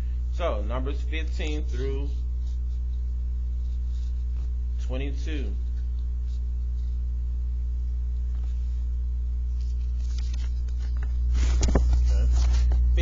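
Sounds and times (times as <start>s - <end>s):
electrical mains hum: 0.0s - 13.0s
paper rustling: 1.3s - 4.5s, 9.5s - 13.0s.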